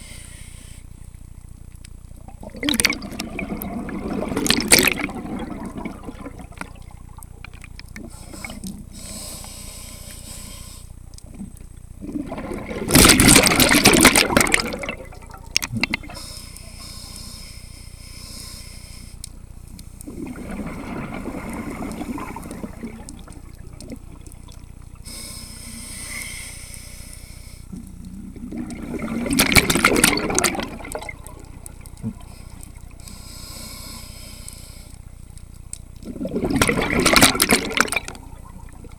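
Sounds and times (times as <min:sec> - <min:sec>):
regulator inhale hiss: 0:00.0 - 0:01.2, 0:08.0 - 0:11.2, 0:16.0 - 0:20.1, 0:25.0 - 0:27.9, 0:32.2 - 0:35.2
exhaled bubbles gurgling: 0:02.2 - 0:09.2, 0:11.2 - 0:16.3, 0:20.0 - 0:25.2, 0:27.7 - 0:33.1, 0:35.9 - 0:38.9.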